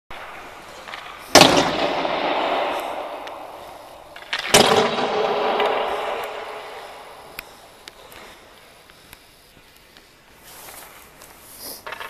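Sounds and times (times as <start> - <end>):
hockey shot bang with echo: 1.3 - 7.3.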